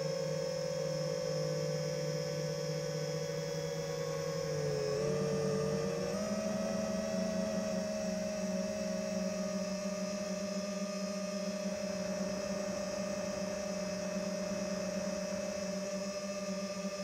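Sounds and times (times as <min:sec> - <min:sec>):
drone propellers humming: 0:11.5 - 0:15.9.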